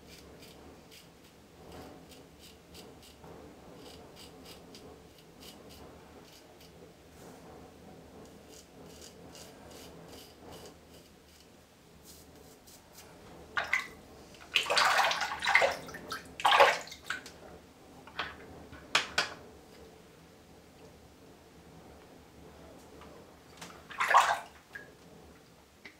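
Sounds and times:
razor scraping stubble: 8.5s - 13.1s
water splashing by hand: 13.6s - 17.2s, 23.9s - 24.9s.

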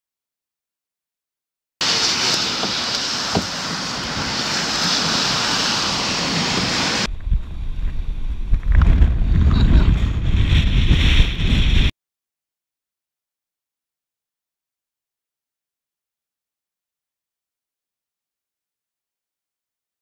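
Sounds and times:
rough surf breaking: 1.8s - 11.9s
storm wind: 1.8s - 11.9s
wind-driven rain hissing: 1.8s - 11.9s
wind buffeting microphone: 1.9s - 11.9s.

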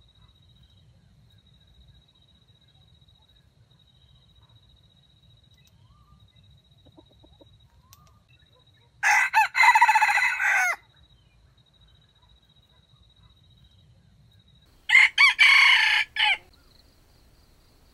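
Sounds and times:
rooster crowing: 9.0s - 10.8s, 14.8s - 16.5s.

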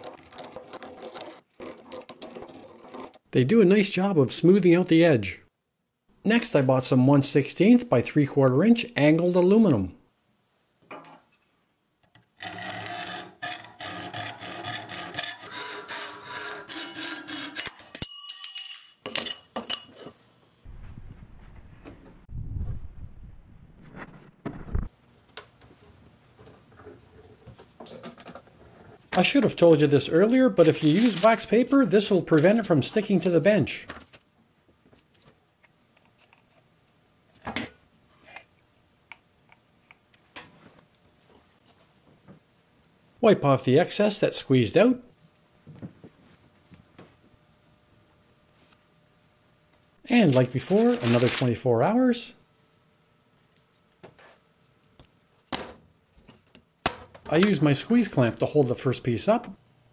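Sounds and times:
hacksaw cutting metal: 12.4s - 18.1s
metal ringing under blade: 17.9s - 19.5s.

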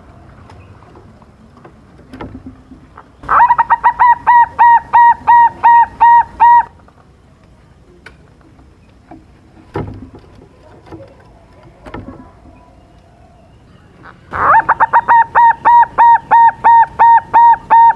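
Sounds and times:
dove cooing: 3.2s - 6.8s, 14.0s - 17.9s.

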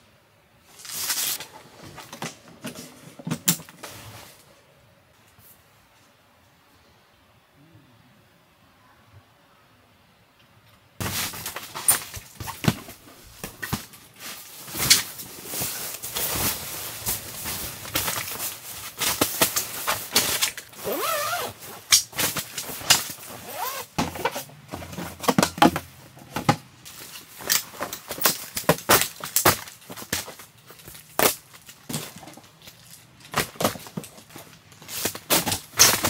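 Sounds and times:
nylon fabric rustling: 11.0s - 24.0s.

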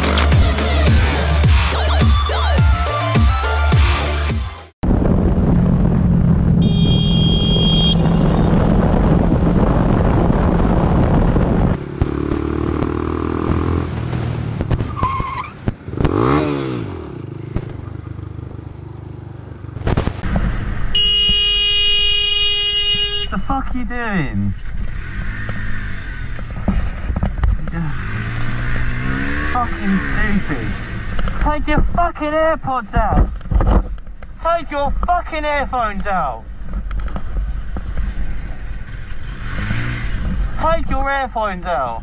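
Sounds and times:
road noise: 0.0s - 2.0s, 4.0s - 42.0s
motorcycle engine: 0.0s - 2.1s, 4.8s - 31.9s, 36.4s - 40.8s
short high horn: 6.6s - 8.5s, 21.0s - 23.4s
long horn blast: 6.6s - 8.6s, 20.9s - 23.4s.

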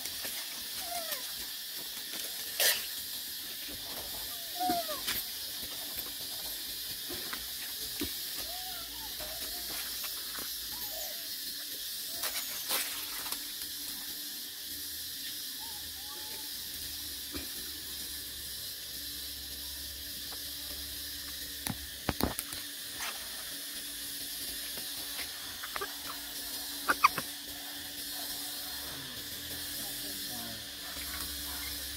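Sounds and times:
high outdoor ambience hiss: 0.0s - 31.9s
faint monkey squeaks: 4.3s - 5.1s, 10.7s - 11.4s, 15.6s - 16.6s, 25.6s - 27.3s.

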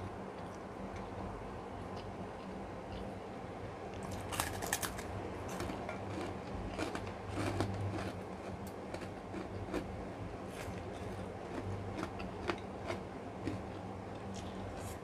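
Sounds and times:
low steady hum: 0.0s - 15.0s
cracker crunching: 3.9s - 9.9s, 10.5s - 15.0s.

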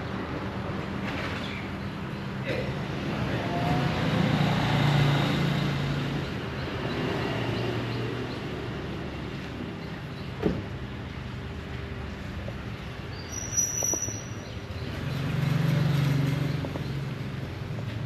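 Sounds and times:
vehicle engine passing: 2.9s - 6.2s, 13.9s - 18.0s.

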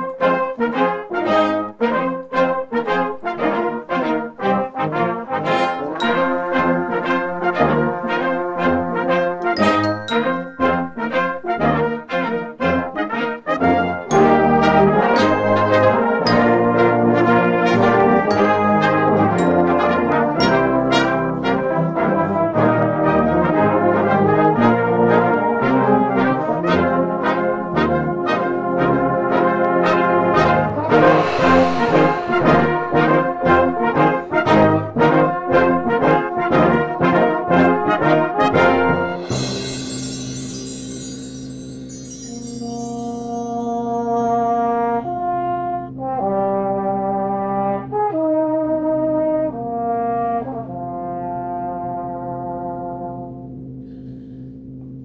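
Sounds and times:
brass band playing: 0.0s - 53.4s
cymbal wash: 30.7s - 34.5s, 39.0s - 44.7s.

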